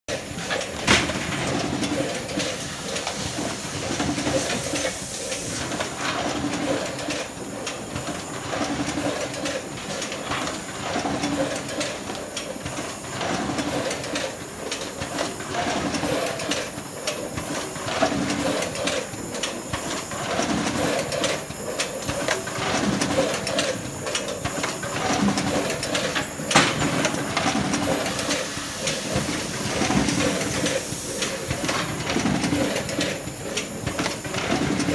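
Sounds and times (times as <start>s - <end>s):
machine clatter and hiss: 0.1s - 34.9s
sharp clicks and knocks: 20.5s - 29.0s.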